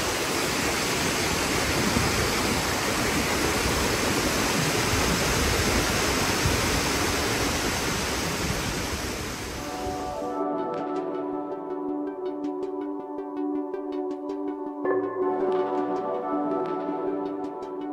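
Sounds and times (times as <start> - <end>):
waterfall rushing: 0.0 - 10.4.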